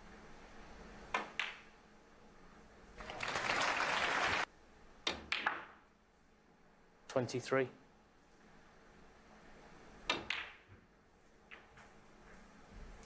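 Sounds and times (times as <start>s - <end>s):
audience applause: 3.0s - 4.5s
cue striking ball: 10.1s - 10.7s.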